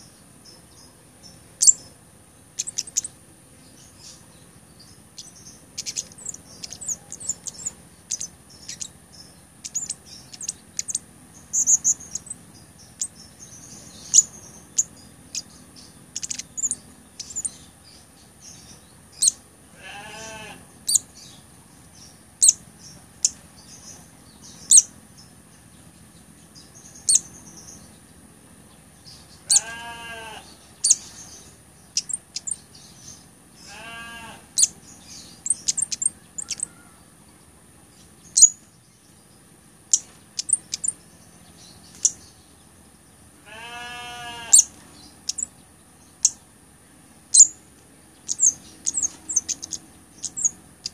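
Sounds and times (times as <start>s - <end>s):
lower longer bird call: 35.4s - 37.1s, 43.5s - 44.7s.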